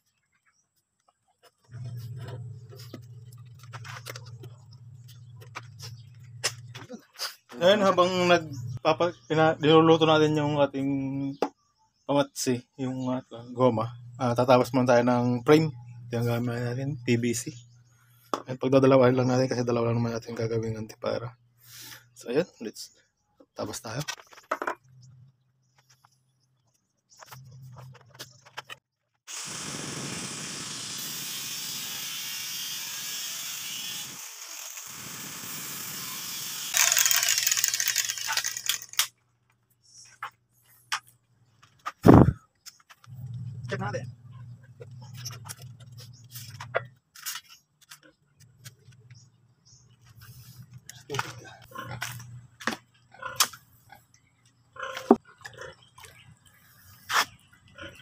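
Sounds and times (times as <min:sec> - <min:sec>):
angle grinder cutting pipe: 0:29.3 - 0:39.1.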